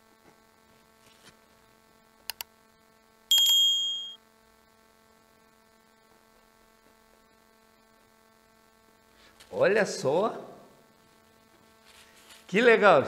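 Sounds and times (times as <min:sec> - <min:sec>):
faint mains hum: 0:00.0 - 0:13.0
bright bell ding: 0:03.3 - 0:04.2.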